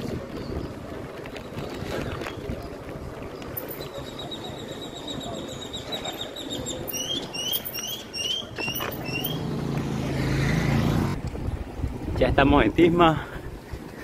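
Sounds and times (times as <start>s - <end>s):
bicycle tyres on paving stones: 0.0s - 14.0s
bird chirping: 3.8s - 9.5s.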